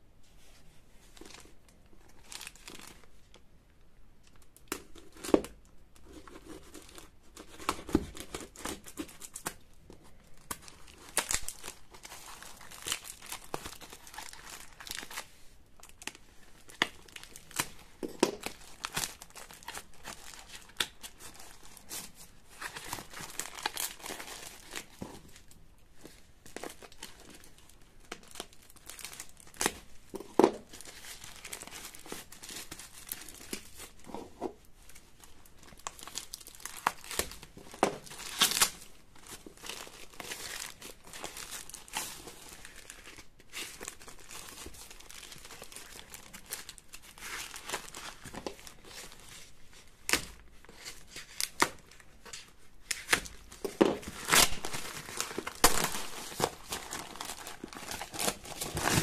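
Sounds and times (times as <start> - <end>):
plastic bag crinkling: 10.3 - 34.2, 34.9 - 49.4, 53.4 - 59.0
packing tape ripping: 35.9 - 38.8, 52.9 - 59.0.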